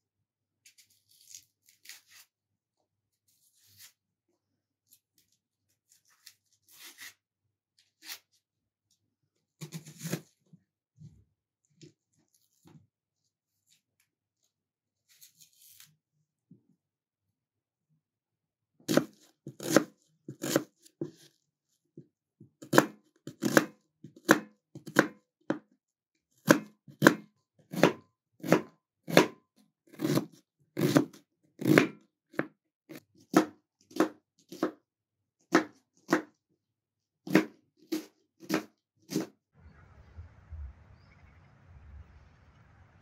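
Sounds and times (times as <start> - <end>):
knife cutting onion on board: 9.6 - 10.3, 18.9 - 21.3, 22.6 - 25.6, 26.4 - 34.8, 35.5 - 36.3, 37.2 - 39.4.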